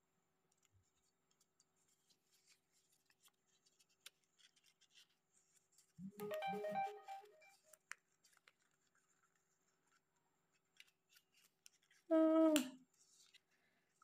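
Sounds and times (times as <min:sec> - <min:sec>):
paper crinkling and clicking: 0:00.5 - 0:06.0, 0:07.9 - 0:12.1.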